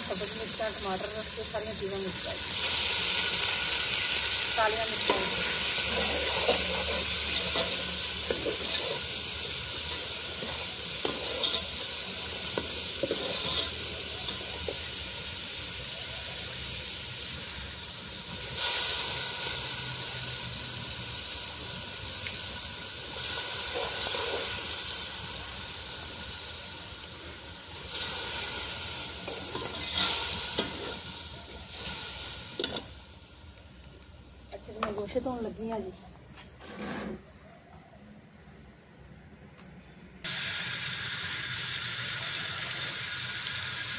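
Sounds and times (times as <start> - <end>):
food sizzling in a pot: 0.0 - 35.8, 40.2 - 43.9
metal ladle scraping pot: 5.1 - 14.8, 29.3 - 31.0, 36.4 - 37.4.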